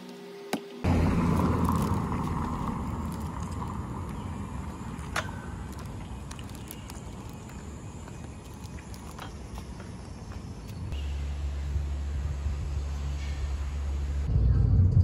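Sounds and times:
low rumbling noise: 0.8 - 15.0.

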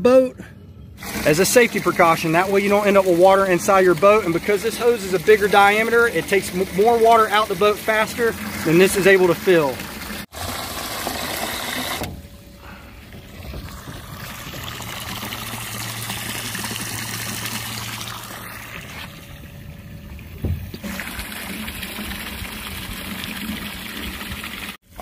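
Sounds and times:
low hum: 0.0 - 1.0, 11.0 - 22.9
water jetting into lake: 1.0 - 12.1, 13.0 - 19.4, 20.6 - 24.8
water pouring into tank: 1.0 - 12.1, 13.0 - 19.4, 20.7 - 24.8
dull thump: 20.4 - 20.8.

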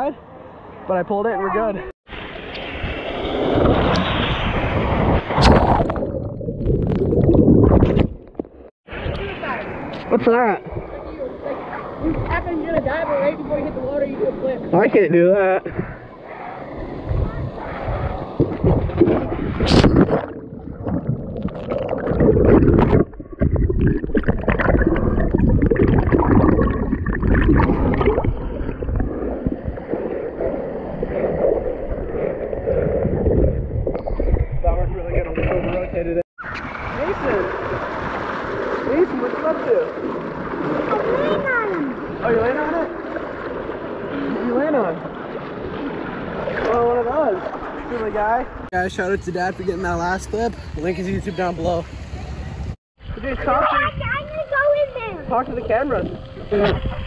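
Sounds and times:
water splash: 2.1 - 10.1, 17.1 - 35.8, 36.4 - 48.6
bubbles gurgling: 5.1 - 8.7, 18.4 - 34.7
muffled underwater rumble: 15.7 - 38.1
splash into swimming pool: 36.4 - 48.0.

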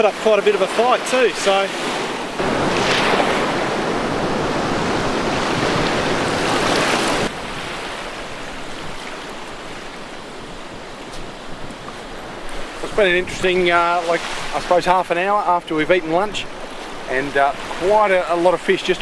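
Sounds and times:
wave breaking: 0.0 - 15.0
small waves hissing on beach: 0.2 - 14.8.

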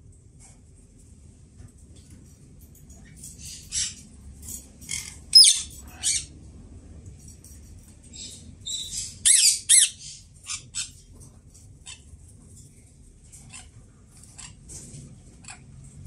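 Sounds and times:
parakeet shrill calls: 4.9 - 6.3, 8.1 - 11.0.

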